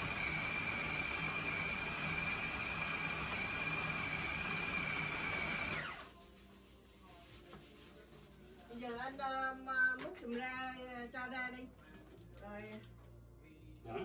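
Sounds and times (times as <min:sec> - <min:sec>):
food processor motor whining: 0:00.0 - 0:06.0.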